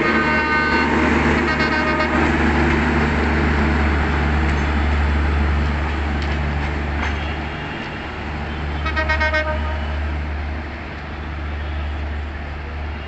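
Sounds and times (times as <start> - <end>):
train horn: 0.0 - 2.4, 8.8 - 10.0
train rumbling on track: 0.0 - 13.0.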